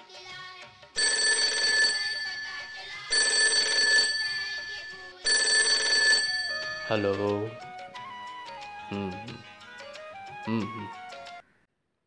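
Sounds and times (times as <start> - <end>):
old telephone bell ringing: 1.0 - 7.3.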